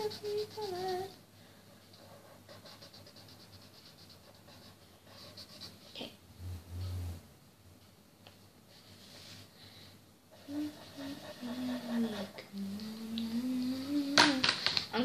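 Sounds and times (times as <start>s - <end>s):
girl humming: 0.0s - 1.2s, 10.4s - 14.7s
marker rubbing on paper: 0.0s - 1.2s, 1.9s - 6.0s, 10.4s - 12.4s.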